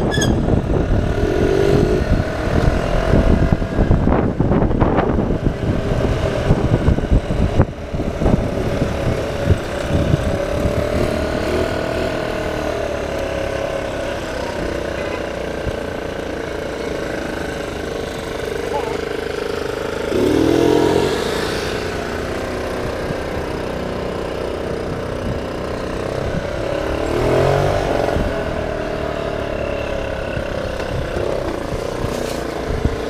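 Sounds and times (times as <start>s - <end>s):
wind rumble on microphone: 0.0s - 12.2s, 24.6s - 29.4s, 30.1s - 33.0s
scooter engine running: 0.0s - 33.0s.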